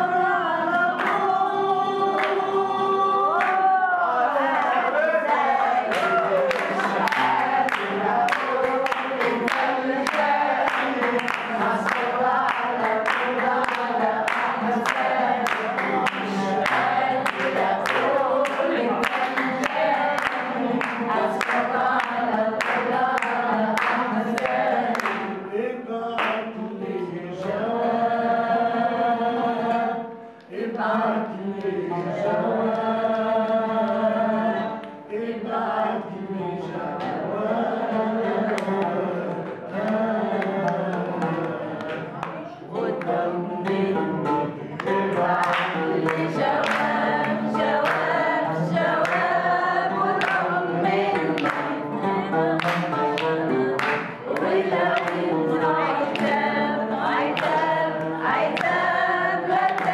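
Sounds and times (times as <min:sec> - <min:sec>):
group of voices singing: 0:00.0 - 0:59.9
hand clapping: 0:01.0 - 0:01.4, 0:02.1 - 0:02.5, 0:03.3 - 0:03.7, 0:04.5 - 0:25.4, 0:26.2 - 0:26.5, 0:38.5 - 0:59.9.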